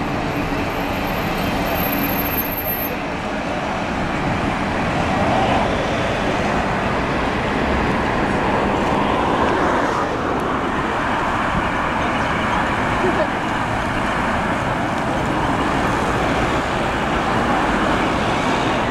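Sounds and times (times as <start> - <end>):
bus passing: 0.0 - 18.9
road traffic noise: 0.0 - 18.9.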